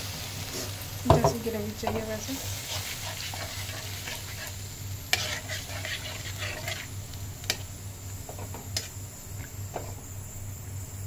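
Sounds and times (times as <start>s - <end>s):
gravy sizzling: 0.0s - 11.0s
spatula scraping pan: 0.5s - 7.6s.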